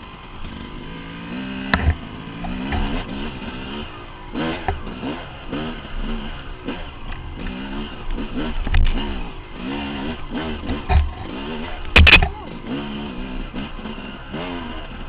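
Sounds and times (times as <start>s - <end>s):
dirt bike engine revving: 0.0s - 15.0s
bike thumping on rocks: 10.6s - 12.4s.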